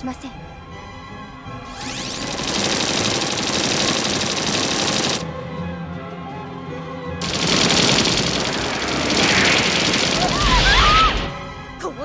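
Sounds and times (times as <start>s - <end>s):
rapid rattling sound effect: 1.8s - 5.2s, 7.2s - 11.4s.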